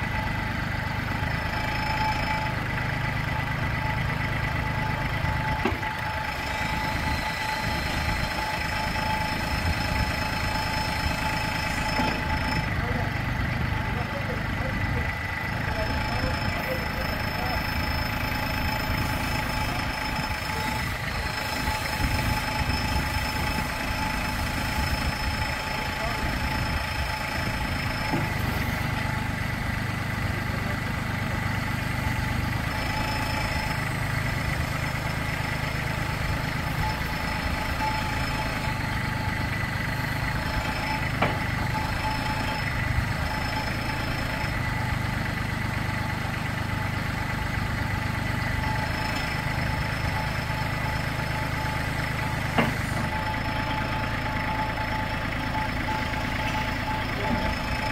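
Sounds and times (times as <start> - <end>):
tractor engine idling: 0.0 - 57.9
loader raised and lowered: 0.3 - 57.9.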